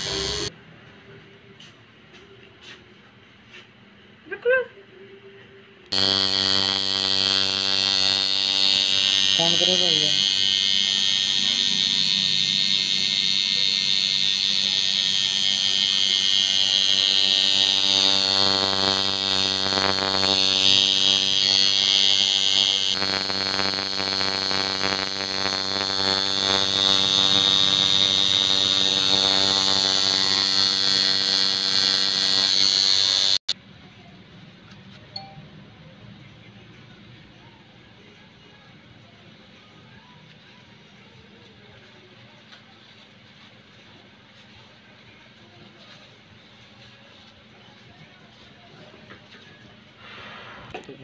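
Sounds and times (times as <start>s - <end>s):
tattoo machine buzzing: 0.0s - 0.5s, 5.9s - 33.6s.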